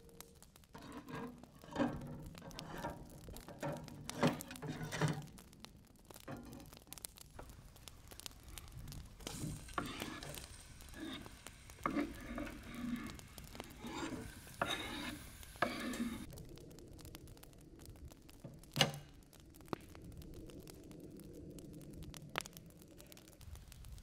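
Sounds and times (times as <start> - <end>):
onion sizzling in oil: 0.0 - 24.0
knife scraping and tapping board: 9.4 - 10.4, 11.9 - 16.3.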